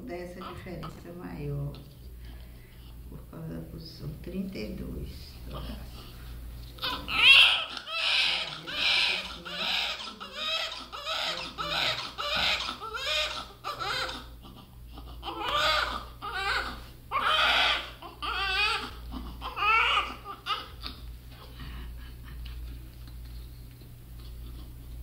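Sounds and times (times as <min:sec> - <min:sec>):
newborn baby crying: 0:06.8 - 0:21.5.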